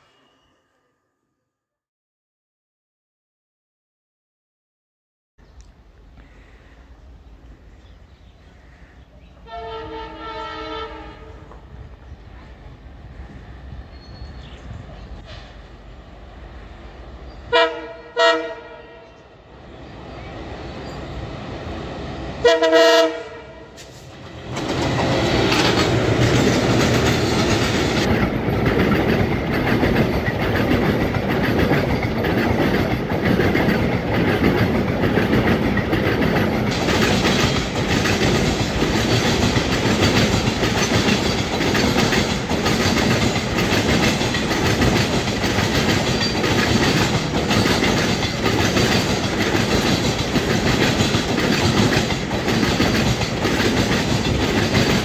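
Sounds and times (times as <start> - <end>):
freight train wheels clattering: 23.8 - 55.0.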